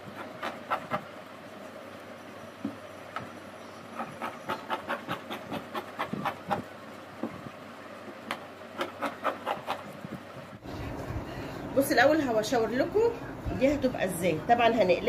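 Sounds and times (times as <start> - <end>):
scissors snipping cloth: 8.8 - 9.8.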